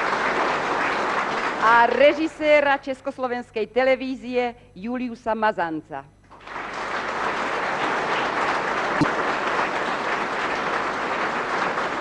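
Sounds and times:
audience applauding: 0.0s - 2.0s, 6.3s - 12.0s.

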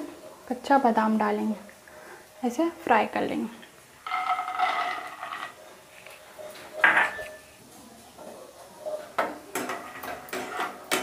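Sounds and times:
peanuts clattering into metal pan: 4.0s - 5.6s.

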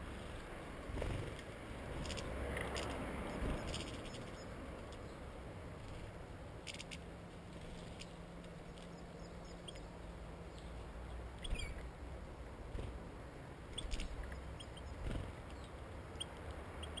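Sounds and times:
goldfinches chirping: 3.2s - 5.2s, 8.0s - 11.8s, 13.7s - 17.0s.

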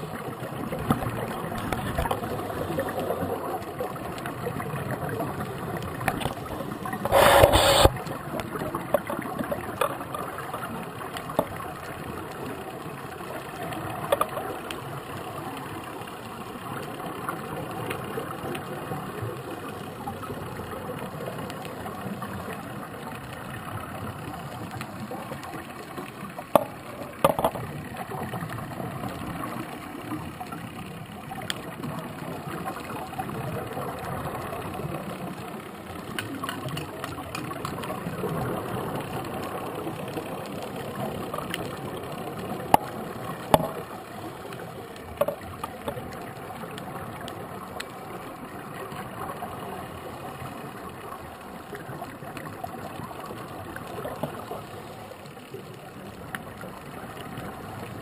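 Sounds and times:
underwater rumble: 0.0s - 58.0s.

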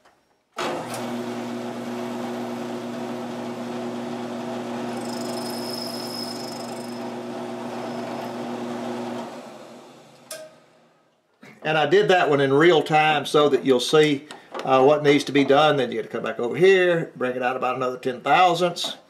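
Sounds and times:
milling machine spindle running: 1.0s - 10.0s
machine spinning down: 3.6s - 10.3s
faint high whine: 4.9s - 7.1s.

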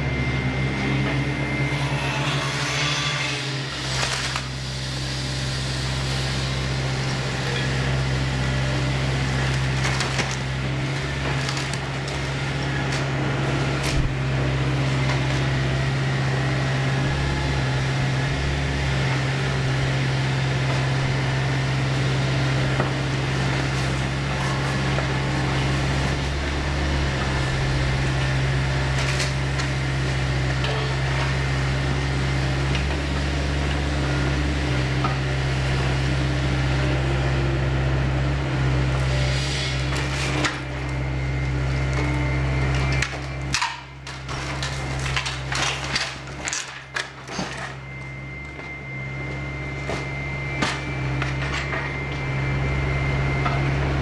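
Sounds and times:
excavator diesel engine humming: 0.0s - 54.0s
wood crunching and splintering: 3.4s - 4.6s, 9.1s - 15.6s, 22.0s - 31.6s, 41.5s - 47.8s.

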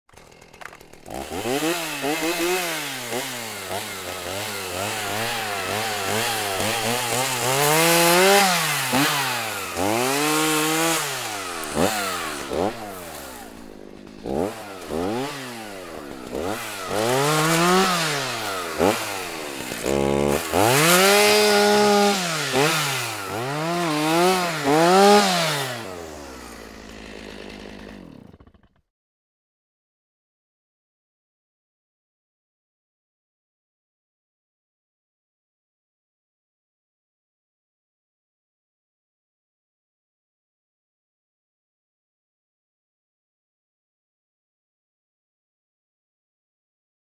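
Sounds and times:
chainsaw revving and cutting wood: 0.1s - 28.9s.

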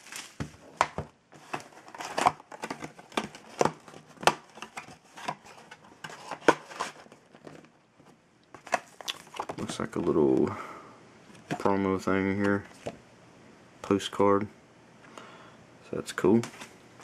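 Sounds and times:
plastic wrapping crinkling: 0.0s - 0.8s, 1.4s - 10.0s.

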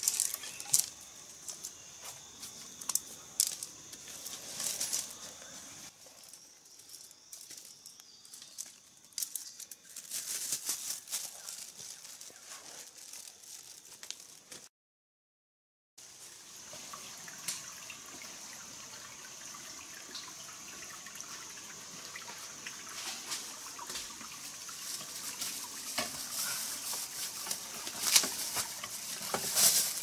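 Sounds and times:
footsteps through dry leaves: 5.9s - 14.7s, 24.9s - 30.0s.

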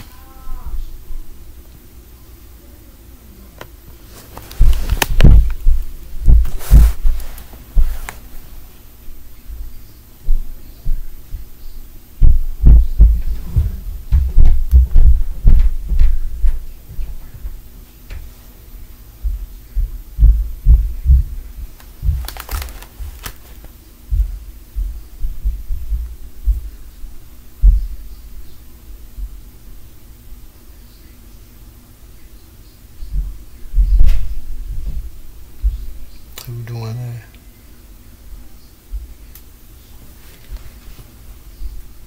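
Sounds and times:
steady low hum: 0.0s - 42.0s
heavy thumps of stomping on floor: 4.6s - 7.2s, 12.2s - 17.6s, 19.2s - 23.2s, 24.1s - 26.8s, 27.6s - 28.1s, 33.1s - 35.9s
short rustle: 6.3s - 8.7s.

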